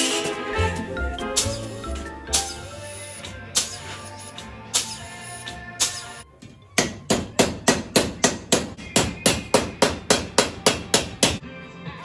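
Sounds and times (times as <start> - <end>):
hammer striking metal strip: 3.2 - 6.2, 6.8 - 11.4.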